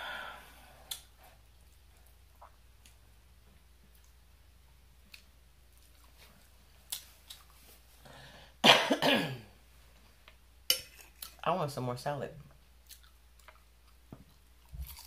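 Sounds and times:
woman coughing: 0:08.6 - 0:09.5.

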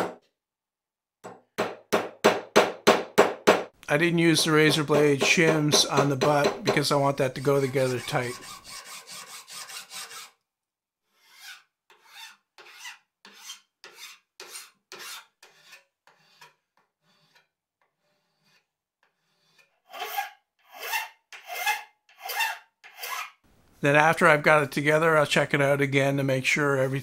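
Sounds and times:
hand file rasping on metal: 0:04.4 - 0:10.4, 0:11.0 - 0:23.4.

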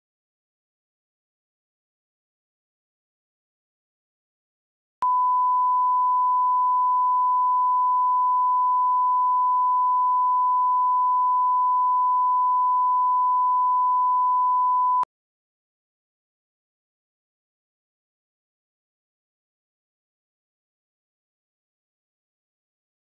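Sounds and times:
sine-wave test tone: 0:05.0 - 0:15.1.

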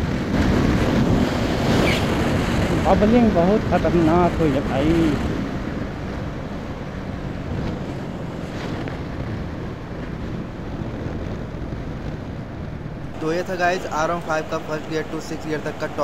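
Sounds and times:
wind rushing over microphone: 0:00.0 - 0:16.0.

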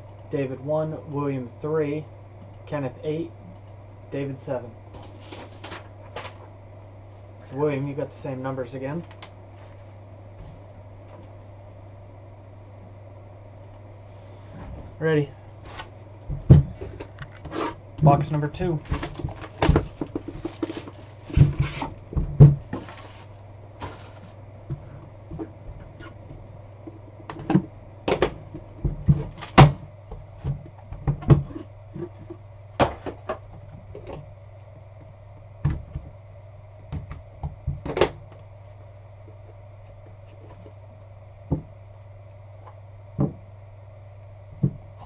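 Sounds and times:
plastic shrink-wrap crinkling: 0:18.8 - 0:23.3.

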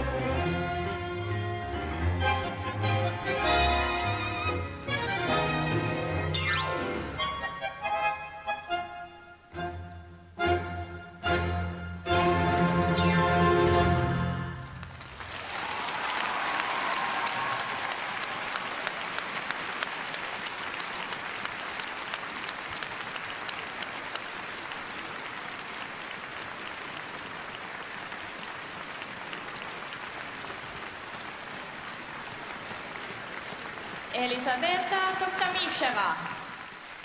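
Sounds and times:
crowd applauding: 0:14.6 - 0:37.0.

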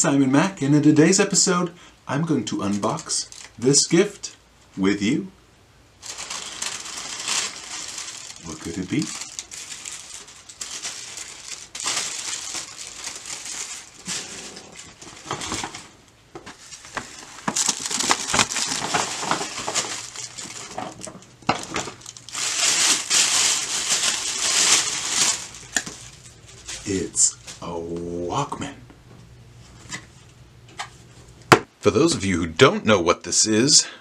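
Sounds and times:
tissue paper crinkling: 0:02.7 - 0:03.6, 0:06.0 - 0:27.8.

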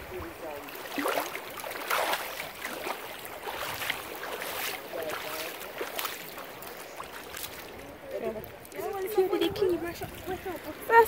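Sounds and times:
water along shoreline: 0:00.0 - 0:11.0
wind on microphone: 0:09.2 - 0:11.0.

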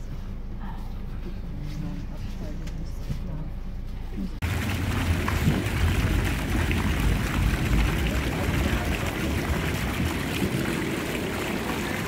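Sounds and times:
fountain jets splashing: 0:04.4 - 0:12.0
wind rumbling on microphone: 0:04.4 - 0:12.0.

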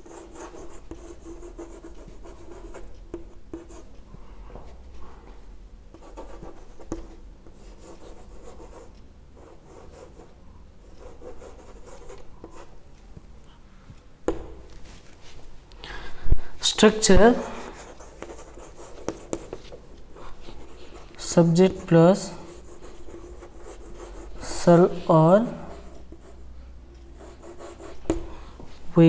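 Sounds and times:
chalk scratching on chalkboard: 0:17.4 - 0:26.4, 0:27.2 - 0:28.3.

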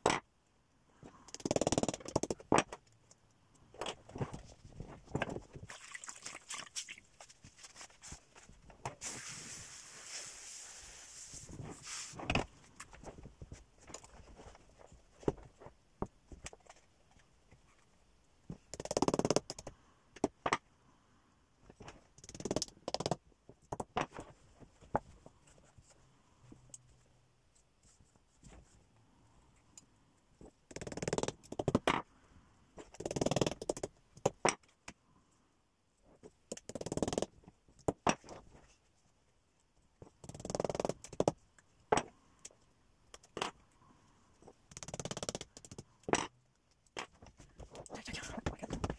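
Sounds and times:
felt rustling and scraping: 0:06.6 - 0:15.8.

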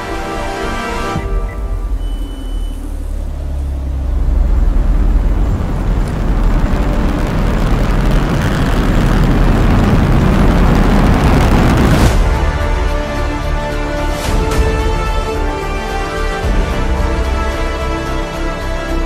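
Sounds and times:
rushing noise: 0:01.2 - 0:15.5
deep rumble: 0:01.2 - 0:18.0.

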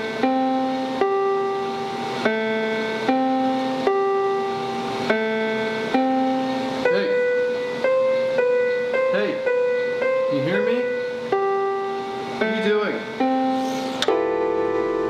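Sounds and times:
electronic keyboard held notes: 0:00.0 - 0:15.0.

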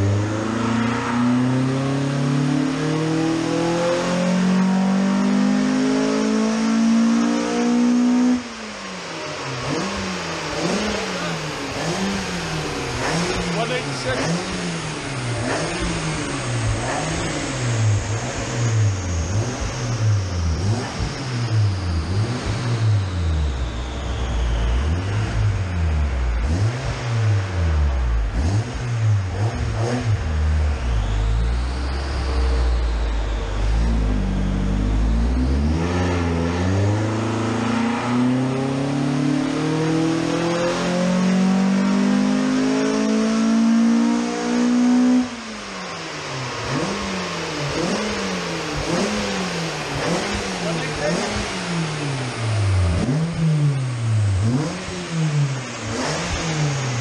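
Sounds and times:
four-cylinder engine revving: 0:00.0 - 0:57.0.

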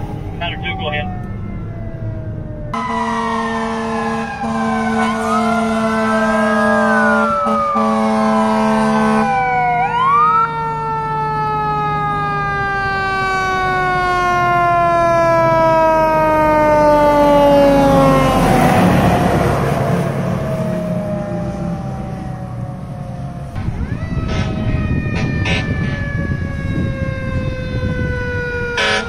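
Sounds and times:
engine and road noise: 0:00.0 - 0:29.0
fire truck siren: 0:00.0 - 0:29.0
fire truck horn: 0:02.7 - 0:10.4, 0:23.6 - 0:29.0.

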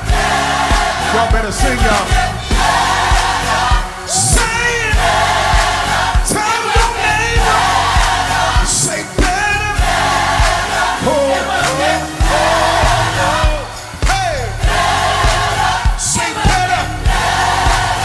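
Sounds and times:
kick drum beat: 0:00.0 - 0:10.8, 0:12.2 - 0:18.0
gospel choir singing with band: 0:00.0 - 0:18.0.

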